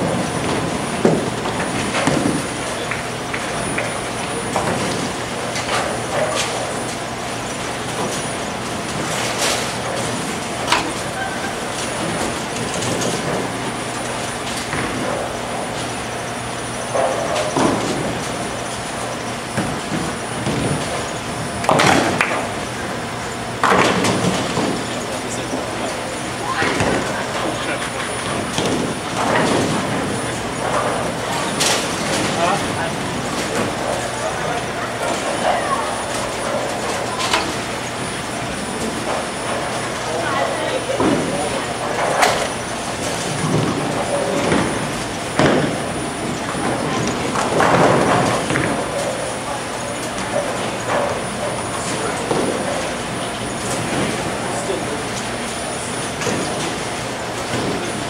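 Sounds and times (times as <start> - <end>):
bowling balls rolling: 0.0 - 58.0
pinsetter machinery: 0.0 - 58.0
bowling pins crashing: 26.5 - 53.0.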